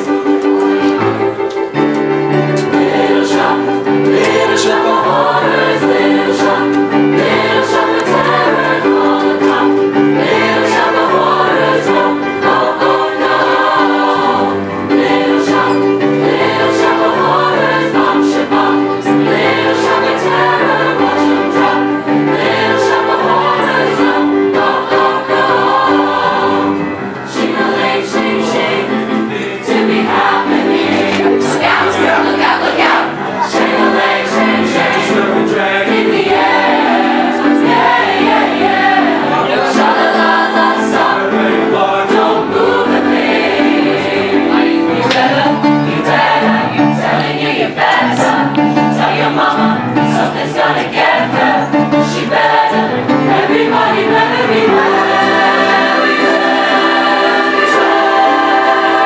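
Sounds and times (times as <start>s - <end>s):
choir singing: 0.0s - 59.0s
instrumental accompaniment: 0.0s - 59.0s.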